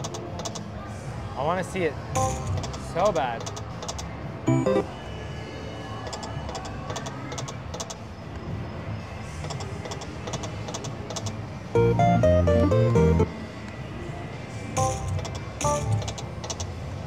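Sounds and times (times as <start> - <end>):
soft looping slot machine tune: 2.2 - 2.8, 4.4 - 5.1, 11.7 - 13.4, 14.8 - 16.2.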